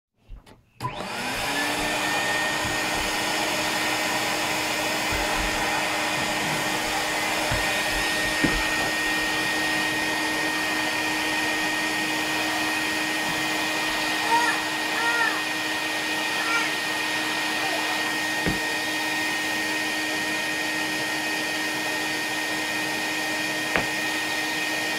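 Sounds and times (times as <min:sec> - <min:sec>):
vacuum cleaner motor running: 0:00.8 - 0:24.9
knock: 0:18.4 - 0:18.6, 0:23.7 - 0:23.9.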